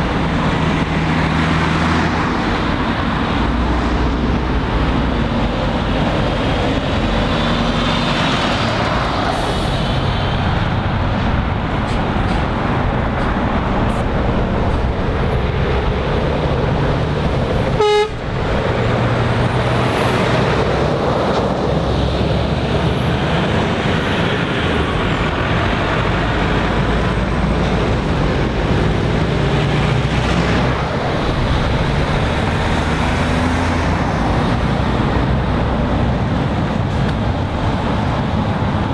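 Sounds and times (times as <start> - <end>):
lorries and vans driving past: 0.0 - 38.9
vehicle horn toot: 17.8 - 18.2.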